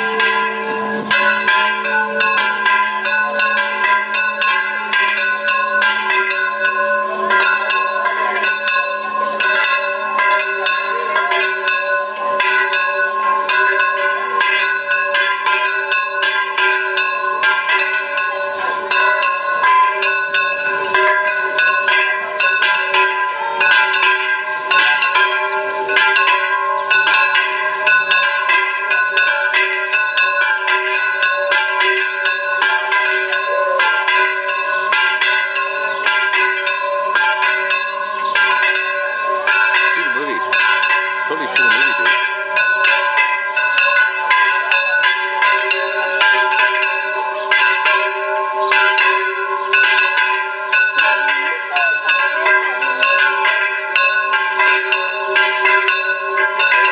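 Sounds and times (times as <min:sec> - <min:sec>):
church bells pealing: 0:00.0 - 0:56.9.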